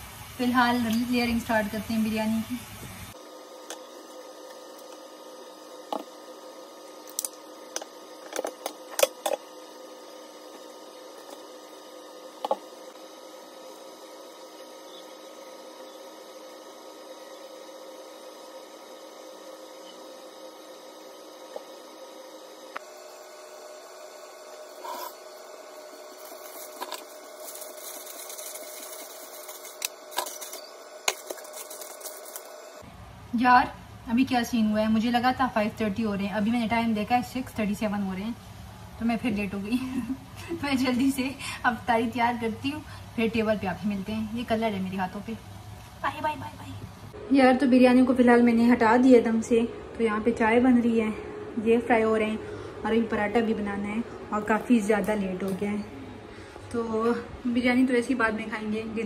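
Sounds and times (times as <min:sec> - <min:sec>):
steady hum: 0:00.0 - 0:59.0
aluminium foil rustling and crinkling: 0:26.1 - 0:32.6.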